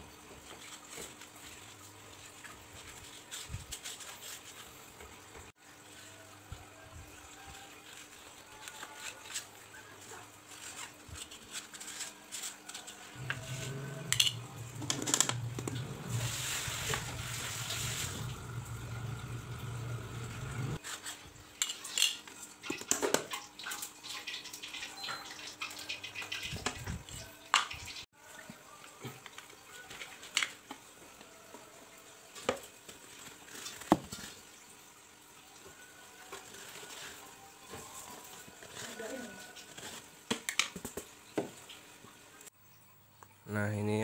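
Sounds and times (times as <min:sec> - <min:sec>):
low steady hum: 0:13.2 - 0:20.8.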